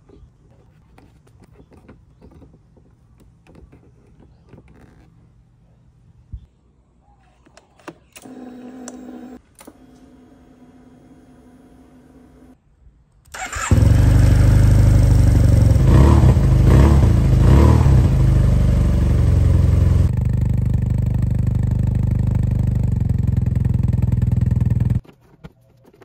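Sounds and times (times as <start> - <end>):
electric starter cranking: 13.3 - 14.9
scooter engine running and idling: 13.6 - 25.0.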